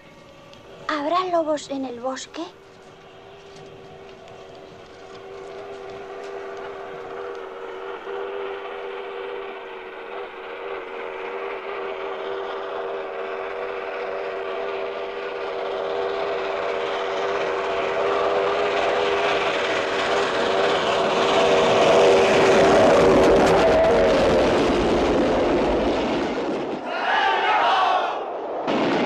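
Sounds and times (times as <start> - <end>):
train rumble: 0.0 - 28.5
steam whistle chord: 5.2 - 13.3.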